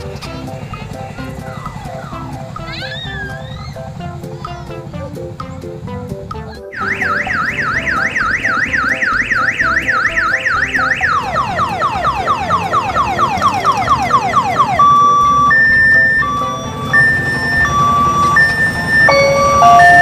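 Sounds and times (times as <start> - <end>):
loud electronic siren: 6.8 - 20.0.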